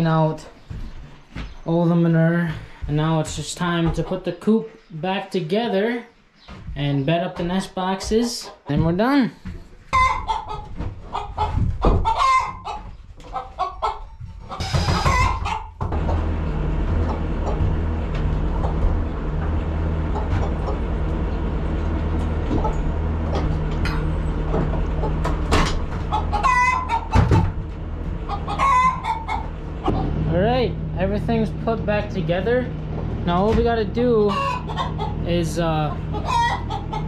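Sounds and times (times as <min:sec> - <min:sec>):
chickens clucking: 0:00.0 - 0:37.0
knocks and clatter: 0:14.2 - 0:26.4, 0:27.1 - 0:28.4, 0:29.4 - 0:30.4, 0:32.7 - 0:34.0
low machine hum: 0:15.8 - 0:37.0.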